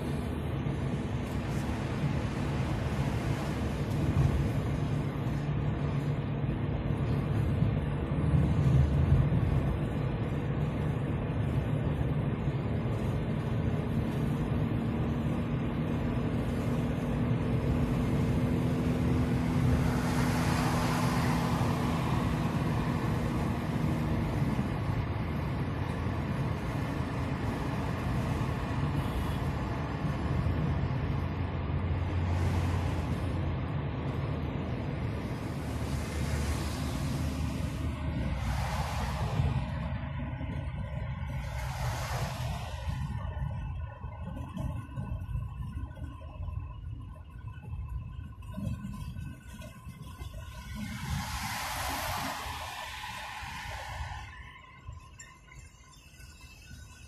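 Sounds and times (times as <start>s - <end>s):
car engine and tyre rumble: 0.0s - 57.0s
rushing noise: 16.8s - 45.9s, 47.9s - 57.0s.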